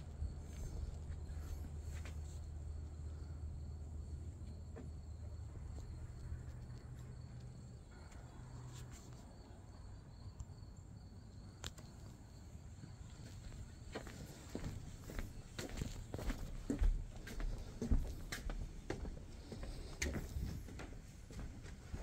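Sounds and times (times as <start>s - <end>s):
footsteps on wooden deck: 0.0s - 8.2s, 12.8s - 22.0s
insects chirring: 0.0s - 20.9s.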